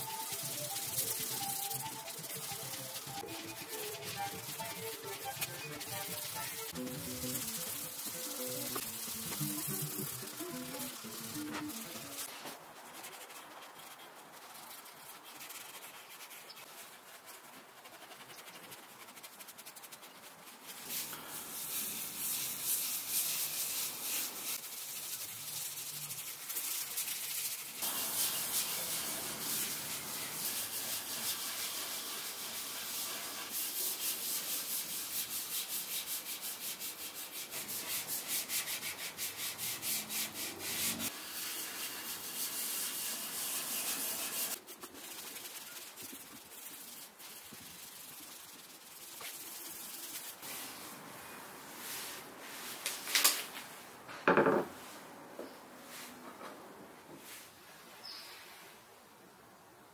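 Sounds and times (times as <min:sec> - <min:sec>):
rag rubbing on wood: 0:00.0 - 0:12.4, 0:22.0 - 0:50.5.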